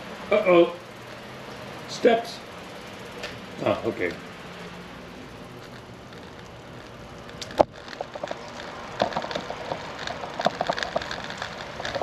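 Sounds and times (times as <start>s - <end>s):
bicycle knocking and rattling: 2.5s - 12.0s.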